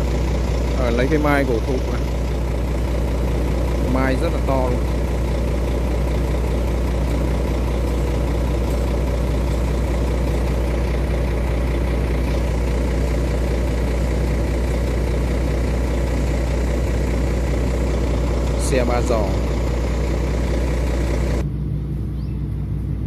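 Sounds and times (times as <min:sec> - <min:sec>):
diesel engine idling: 0:00.0 - 0:23.0.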